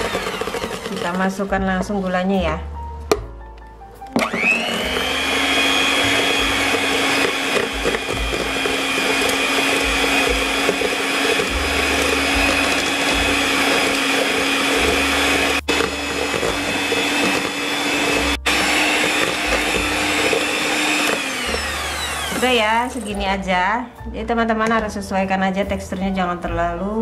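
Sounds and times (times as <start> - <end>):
electric hand mixer whining: 0.0 - 1.5, 4.2 - 23.2.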